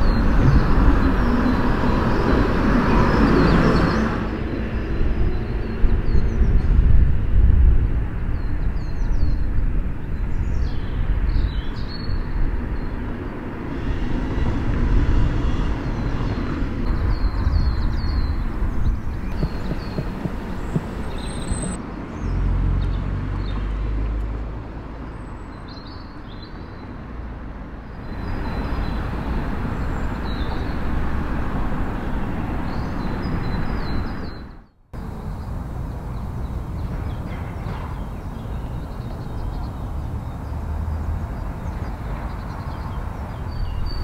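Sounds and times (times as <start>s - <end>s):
bird chirps: 16.9s - 21.8s.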